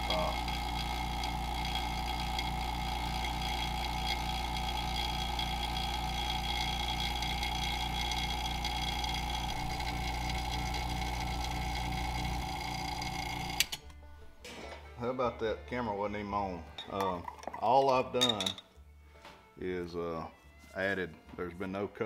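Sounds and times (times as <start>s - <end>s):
vacuum pump pulsing hum: 0.0s - 14.4s.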